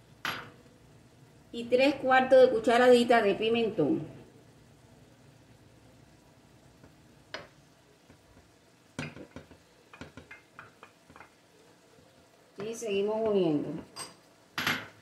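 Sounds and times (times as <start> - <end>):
meat sizzling in a pan: 2.5 - 15.0
wooden spoon tapping glass dish: 9.0 - 11.3.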